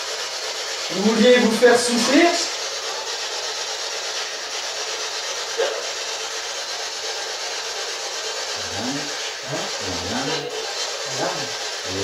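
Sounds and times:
radio static hissing: 8.5s - 12.0s
garbled voice-like fragments: 8.6s - 12.0s.

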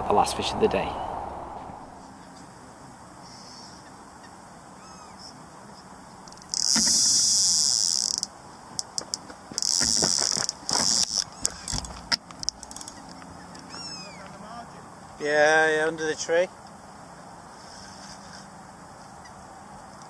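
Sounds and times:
fishing reel spinning: 6.3s - 13.0s
bite alarm buzzing: 6.4s - 14.4s.

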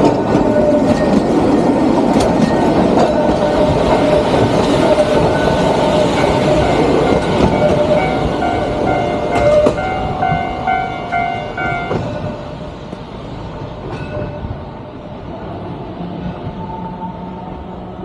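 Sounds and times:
train wheels clattering over rail joints: 0.0s - 10.5s
level-crossing bell ringing: 5.2s - 12.0s.

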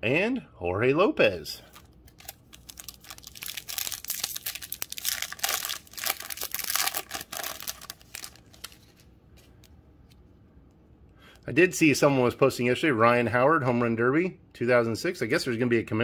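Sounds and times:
foil wrapper tearing and crinkling: 1.7s - 9.0s.

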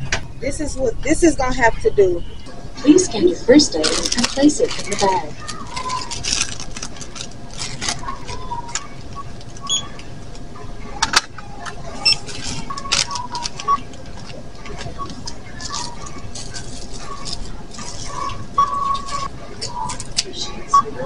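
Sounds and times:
store background noise: 0.0s - 21.0s
packaging rustling: 3.7s - 10.1s, 11.3s - 20.2s
short scanner beeps: 9.6s - 10.0s.

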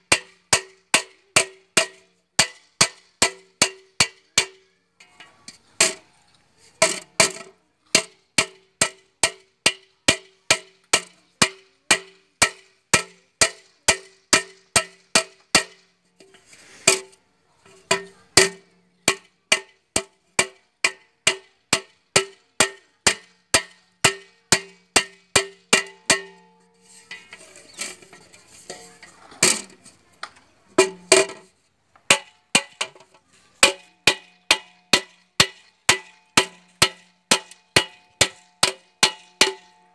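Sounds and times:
hammer tapping nails into metal pot: 33.6s - 39.8s.

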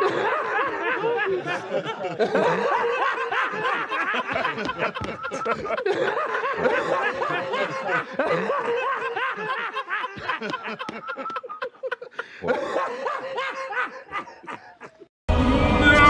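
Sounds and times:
man laughing loudly: 0.0s - 15.1s
people laughing: 0.0s - 15.1s.

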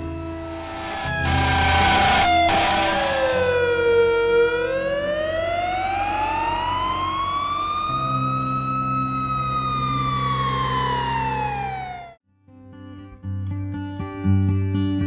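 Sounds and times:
steady low drone: 0.0s - 12.2s
police siren wailing: 0.4s - 12.2s.

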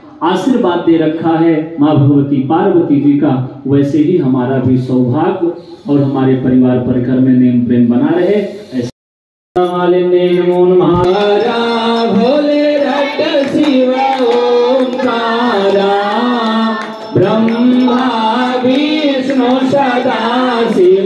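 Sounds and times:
person singing devotional song: 9.6s - 21.0s.

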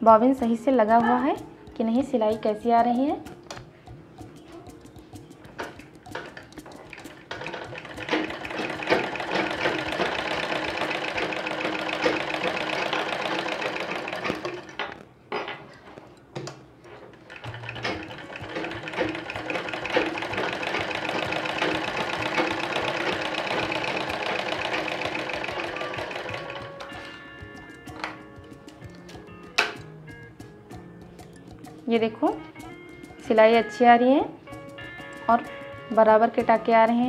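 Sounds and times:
sewing machine stitching: 5.6s - 15.0s, 17.1s - 27.2s.

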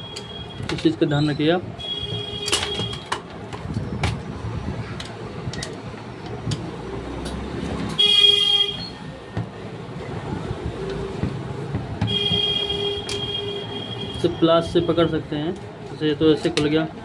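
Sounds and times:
low traffic rumble: 0.0s - 17.0s
vehicle horn: 8.0s - 9.0s, 12.1s - 14.3s.

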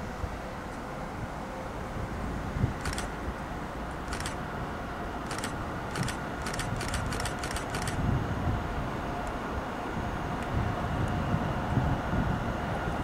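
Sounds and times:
distant locomotive rumble: 0.0s - 13.0s
sharp metallic clicks: 2.8s - 3.1s, 4.1s - 4.4s, 5.2s - 8.0s.

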